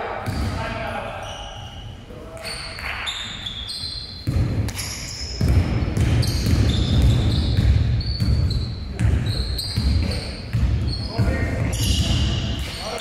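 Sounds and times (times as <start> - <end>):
sneakers squeaking: 0.2 - 13.0
basketball bouncing: 4.2 - 12.4.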